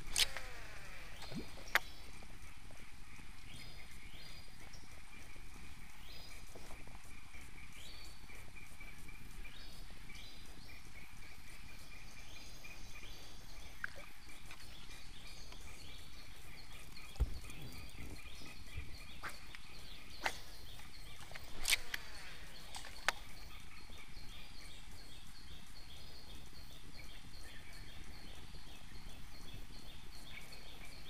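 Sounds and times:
birds calling: 0.0 - 31.0
steady high hum: 0.0 - 31.0
dull thump: 17.2 - 17.8.

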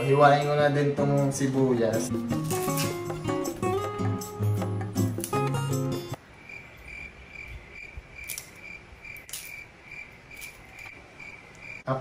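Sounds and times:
cricket chirping: 6.2 - 12.0.

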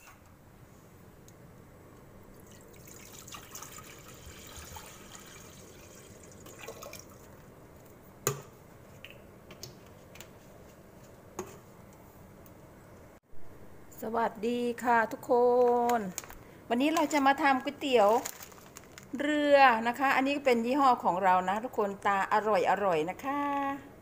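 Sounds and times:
water pouring into metal saucepan: 2.4 - 7.3.

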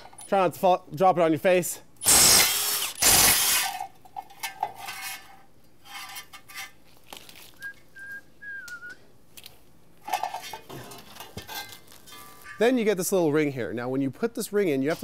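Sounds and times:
impact wrench spinning out bolt: 2.0 - 5.2
person whistling: 7.6 - 9.0.

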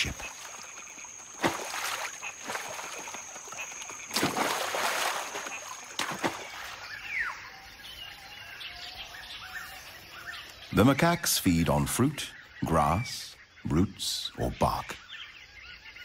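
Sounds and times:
splashes in water: 0.0 - 7.2.

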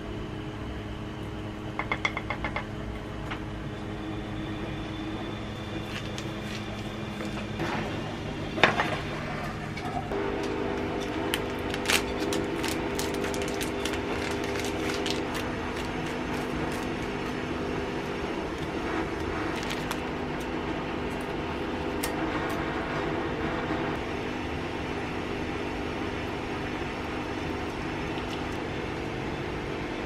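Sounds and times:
low hum with held tones: 0.0 - 30.0
paper crinkling and tearing: 10.3 - 21.4.

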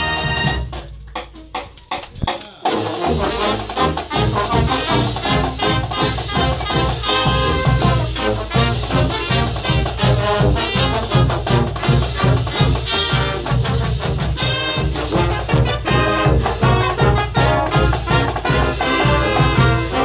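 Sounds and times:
brass band playing swing tune: 0.0 - 20.0.

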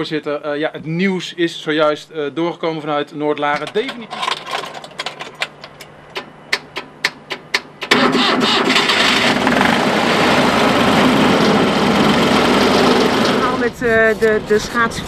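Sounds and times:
truck engine cranking and running: 3.6 - 13.8.

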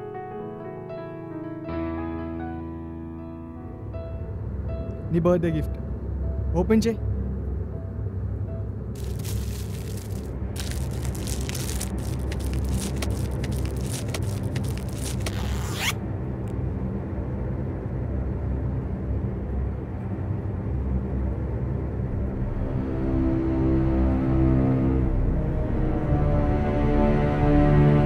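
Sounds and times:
gift wrap crinkling: 9.0 - 16.0
zipper opening: 9.0 - 16.0.

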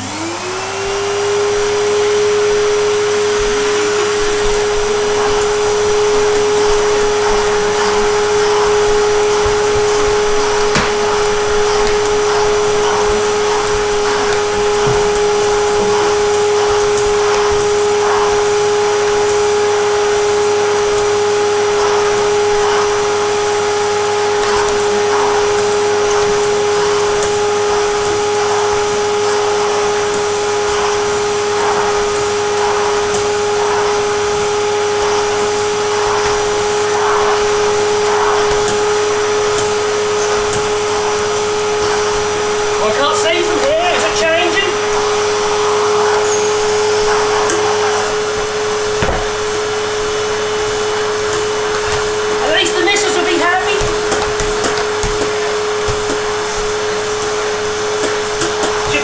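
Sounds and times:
vacuum cleaner whining: 0.0 - 59.0
vacuum nozzle swishing over rug: 0.0 - 59.0.

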